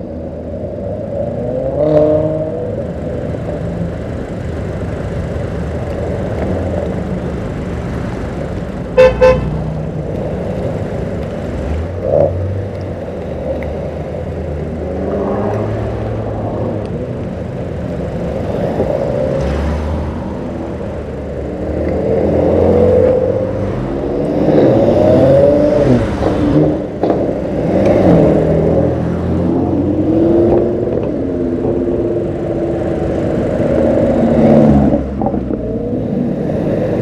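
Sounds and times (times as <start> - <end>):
cars driving past: 0.0 - 37.0
car horn toots: 9.0 - 9.6.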